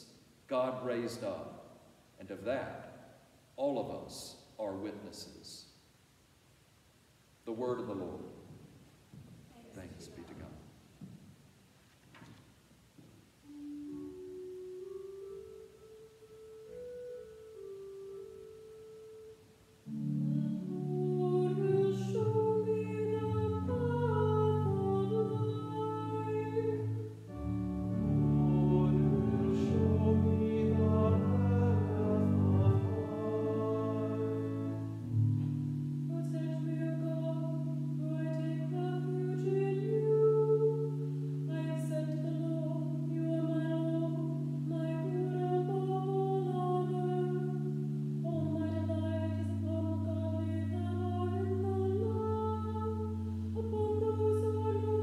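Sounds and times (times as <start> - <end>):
cantor singing: 0.0 - 3.0, 19.9 - 55.0
organ playing chords: 13.4 - 55.0.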